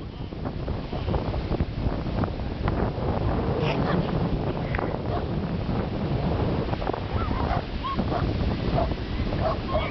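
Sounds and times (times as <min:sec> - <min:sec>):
wind rumbling on microphone: 0:00.0 - 0:09.9.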